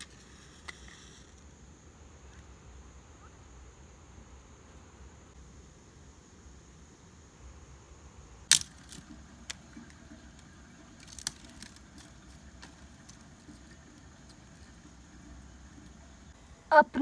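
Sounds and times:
sticks clicking and snapping: 0:08.5 - 0:09.1.

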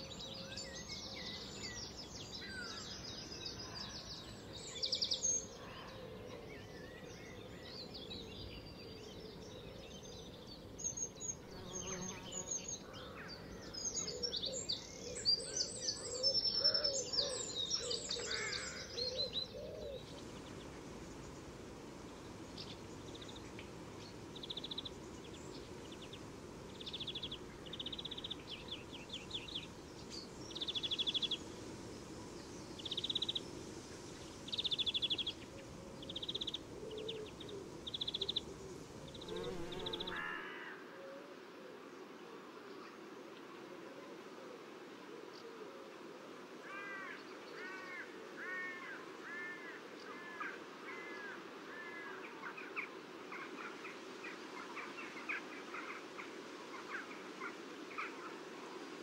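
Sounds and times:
songbirds chirping and singing: 0:00.0 - 0:40.3.

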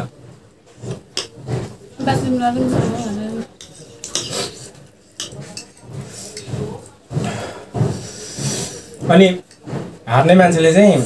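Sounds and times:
utensils clinking against bowl: 0:00.8 - 0:10.0.

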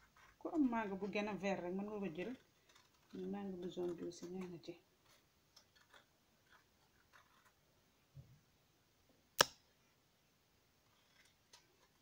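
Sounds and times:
sharp click: 0:09.4 - 0:09.6.

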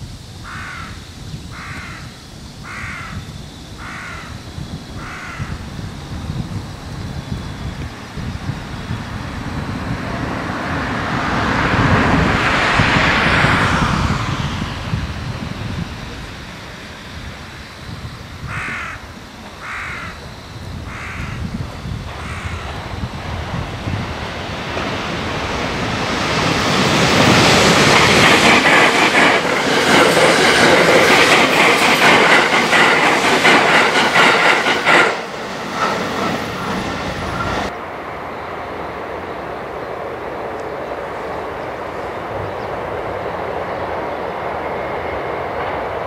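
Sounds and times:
crow cawing: 0:00.4 - 0:03.2, 0:03.8 - 0:04.4, 0:05.0 - 0:05.6, 0:18.4 - 0:19.0, 0:19.6 - 0:20.2, 0:20.9 - 0:21.5, 0:22.2 - 0:22.6.

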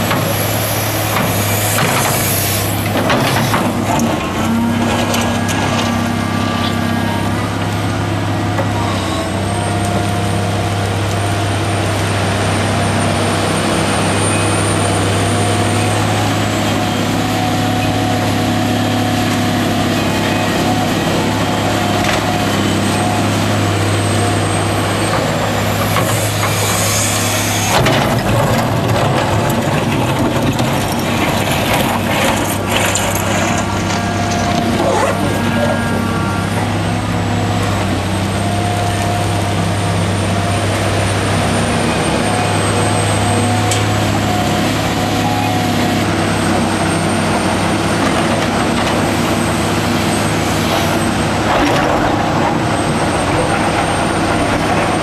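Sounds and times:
diesel engines running under load: 0:00.0 - 0:55.0
hydraulic whines: 0:00.1 - 0:10.0, 0:12.5 - 0:28.8, 0:30.1 - 0:40.1.

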